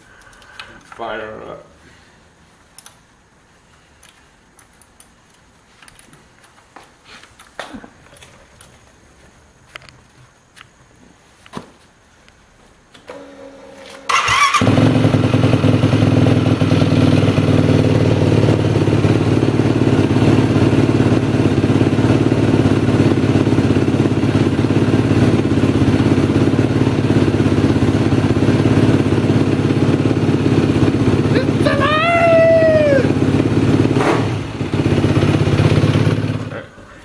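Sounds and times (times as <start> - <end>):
quad engine starting and idling: 13.1 - 37.0.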